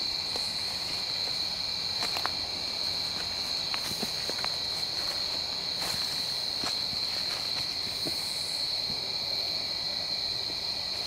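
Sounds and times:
night insects chorus: 0.0s - 11.0s
footsteps on leaf litter: 0.3s - 8.3s.

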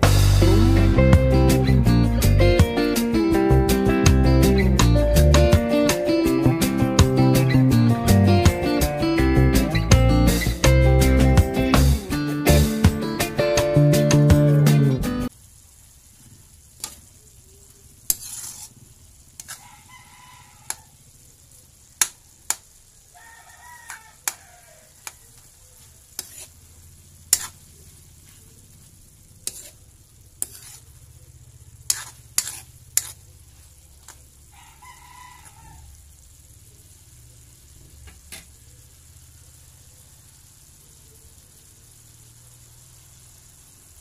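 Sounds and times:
faint sizzle: 0.0s - 44.0s
metal spatula scraping wok: 18.0s - 19.9s, 25.0s - 26.6s, 27.3s - 27.8s, 29.4s - 31.1s, 31.8s - 34.2s.

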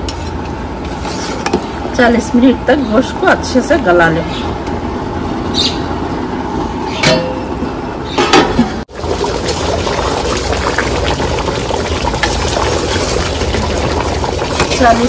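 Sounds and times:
gravy simmering and sloshing: 8.9s - 15.0s.

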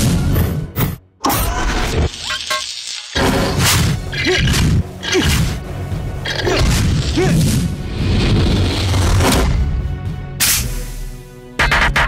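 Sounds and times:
cartoon action music: 11.6s - 12.0s.

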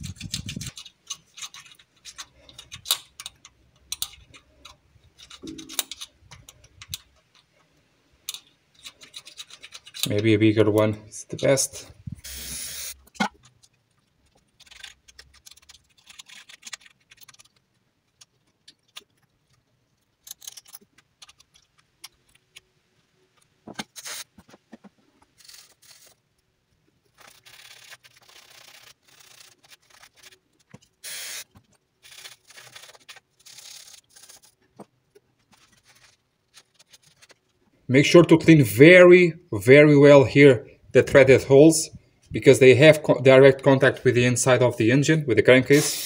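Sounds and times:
hand scraping with drill bit: 12.2s - 13.1s, 27.1s - 31.4s, 45.7s - 46.0s.

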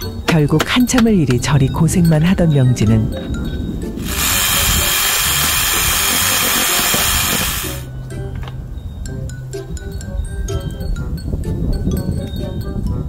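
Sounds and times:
cordless drill running: 4.0s - 7.9s.

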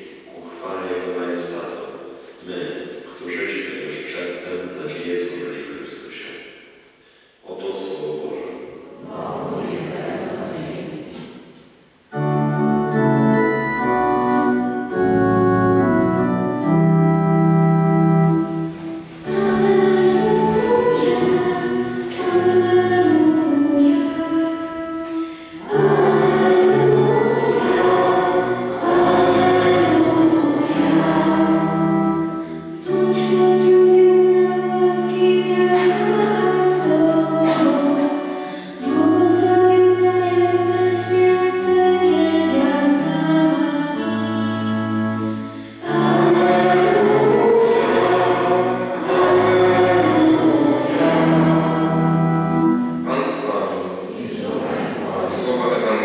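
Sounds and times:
pipe organ playing chords: 12.1s - 56.0s
people singing a hymn: 17.8s - 56.0s.

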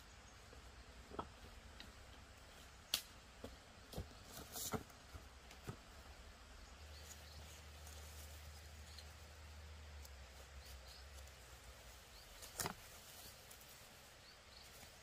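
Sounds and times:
dry leaves and twigs crackling: 6.8s - 15.0s.

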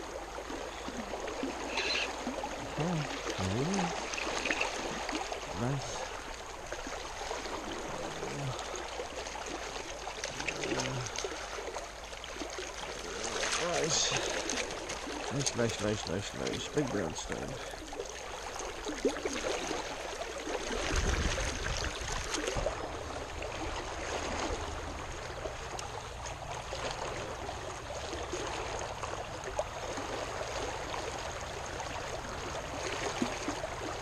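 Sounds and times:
rushing creek water: 0.0s - 34.0s.

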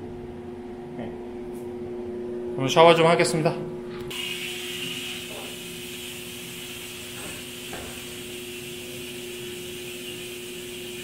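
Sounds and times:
shower spray running: 4.1s - 11.0s.

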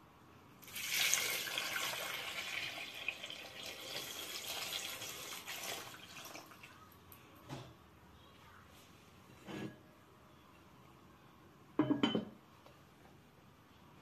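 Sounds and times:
water pouring into a pot: 0.6s - 6.8s.

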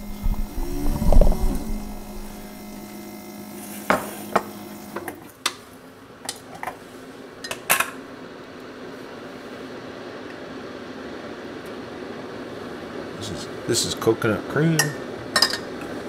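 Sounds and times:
low hum: 0.0s - 3.2s.

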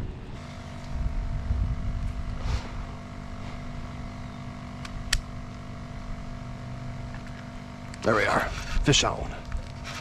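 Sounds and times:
wind buffeting microphone: 0.0s - 3.4s
steady low hum: 0.0s - 10.0s
sharp click: 4.8s - 5.3s.

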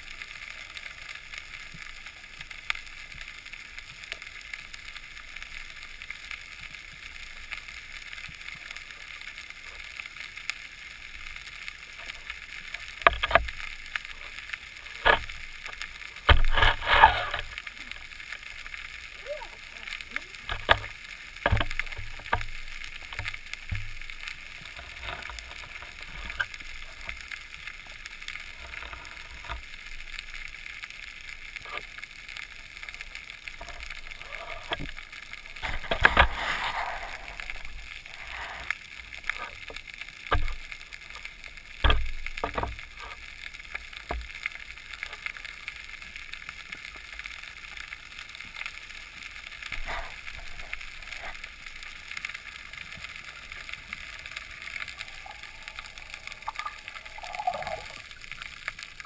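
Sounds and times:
muffled underwater hiss: 0.0s - 59.0s
rushing water swirl: 49.6s - 59.0s.

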